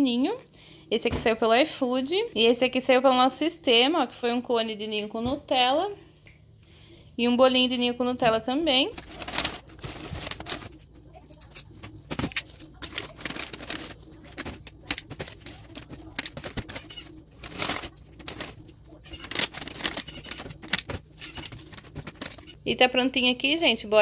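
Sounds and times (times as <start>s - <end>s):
paper bags rustling and crinkling: 8.2s - 22.6s.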